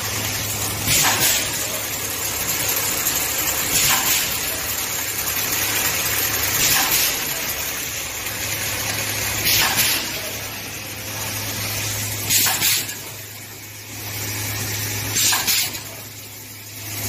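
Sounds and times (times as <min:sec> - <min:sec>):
sewing machine hum: 0:01.5 - 0:09.5.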